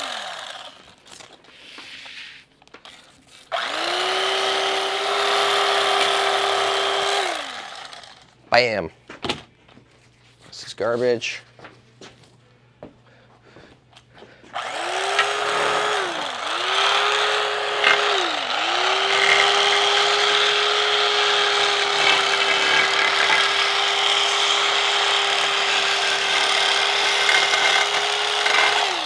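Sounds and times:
power tool motor: 0.0 - 2.2, 2.8 - 8.4, 14.6 - 29.0
hissy cutting noise: 1.5 - 2.5.

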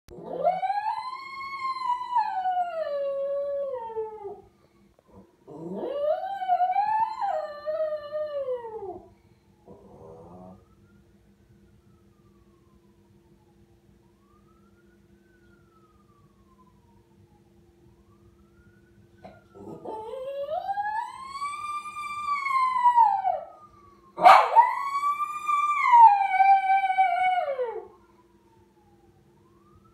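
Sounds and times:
dog howling like a siren: 0.1 - 11.0, 14.2 - 17.0, 18.1 - 29.9
dog howling: 19.6 - 23.5, 24.2 - 27.9.

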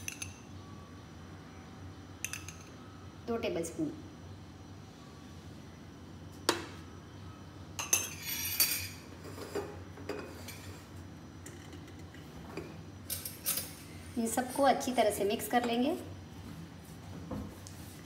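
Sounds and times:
spoon clinking against glass bowl: 2.2 - 2.7.

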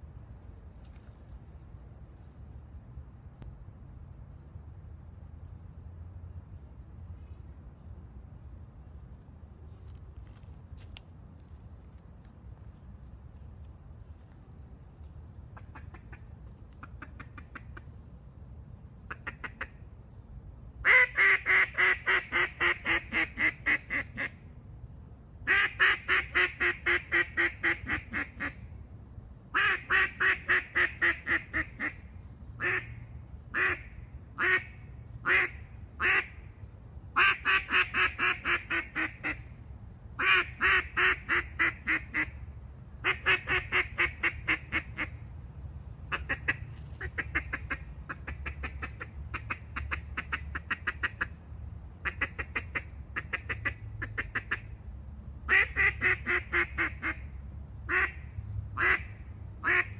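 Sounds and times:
duck call quacks: 55.5 - 57.2, 58.8 - 59.9.

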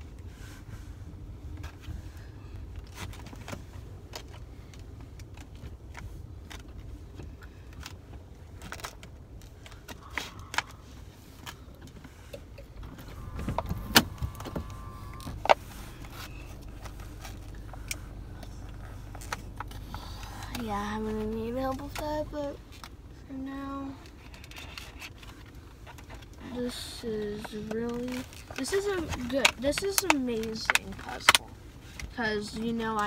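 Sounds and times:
car interior hum: 0.0 - 33.0
short wavering squeal: 13.1 - 15.4
plastic packaging crackling: 27.3 - 33.0.

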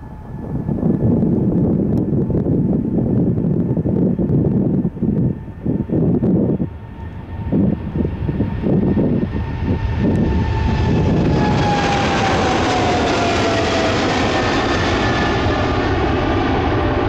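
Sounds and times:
high jet whine dropping in pitch: 0.0 - 17.0
jet engines roaring at takeoff: 0.0 - 17.0
wind buffeting microphone: 0.0 - 17.0.

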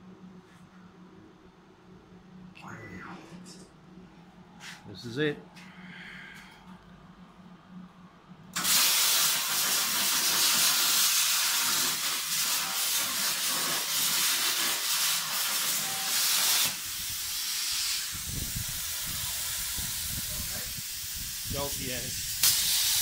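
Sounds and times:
plasma torch arc hissing: 8.6 - 23.0
quieter hiss: 16.4 - 23.0.

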